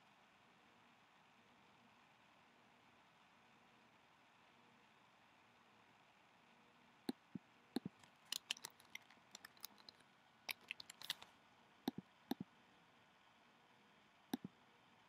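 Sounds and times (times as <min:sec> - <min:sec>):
computer mouse clicks: 0:07.1 - 0:11.3, 0:11.9 - 0:12.4
computer keyboard keystrokes: 0:07.8 - 0:11.2.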